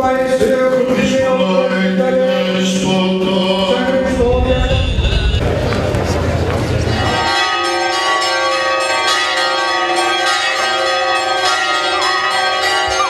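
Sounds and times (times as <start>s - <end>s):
church bells pealing: 6.6s - 13.0s.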